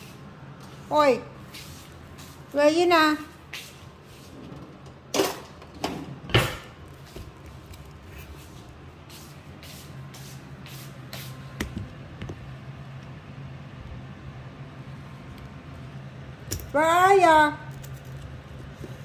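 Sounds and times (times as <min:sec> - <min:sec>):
footsteps on tiled floor: 0:00.0 - 0:04.3, 0:06.9 - 0:11.8
steady low hum: 0:00.0 - 0:19.0.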